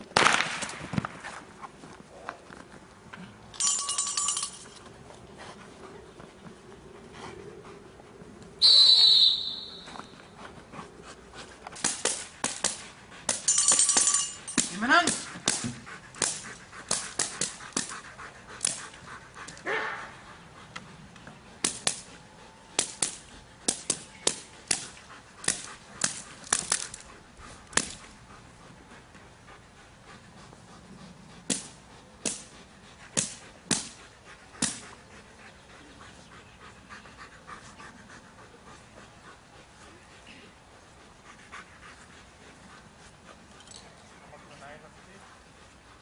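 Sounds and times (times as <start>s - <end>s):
dog barking: 19.7s - 20.0s.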